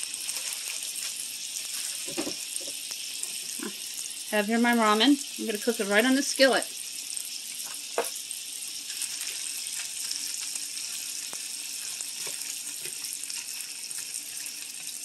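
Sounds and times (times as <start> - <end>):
food sizzling in a skillet: 0.0 - 15.0
wooden spatula scraping and tapping: 12.2 - 13.5.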